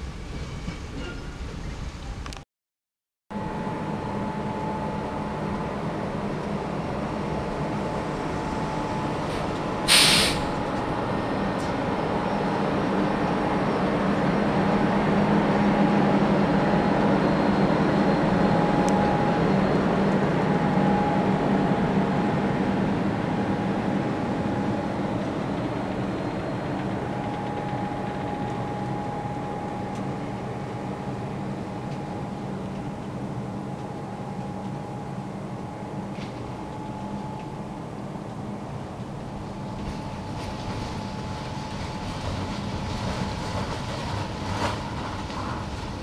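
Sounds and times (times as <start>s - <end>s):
electric locomotive motor hum: 3.3s - 46.0s
air brake hiss: 9.3s - 10.6s.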